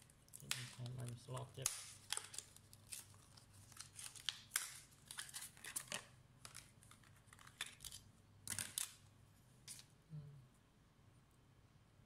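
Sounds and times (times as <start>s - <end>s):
plastic packaging crinkling: 0.0s - 9.0s.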